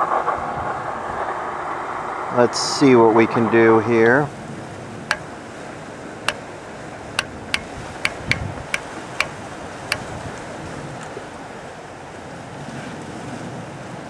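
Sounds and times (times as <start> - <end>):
sharp control clicks: 7.2 - 10.0.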